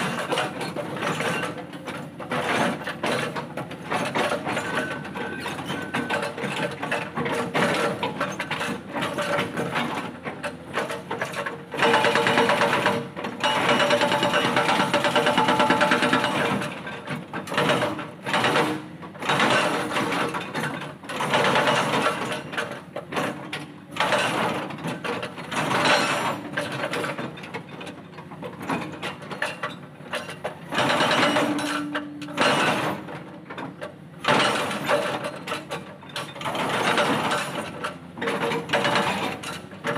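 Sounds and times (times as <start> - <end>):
hydraulic breaker hammering rock: 0.0 - 39.9.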